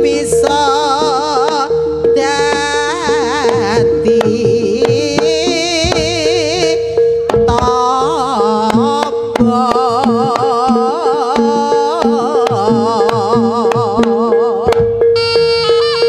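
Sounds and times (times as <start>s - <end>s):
wavering melody with vibrato: 0.0s - 16.0s
drum beat: 3.4s - 15.0s.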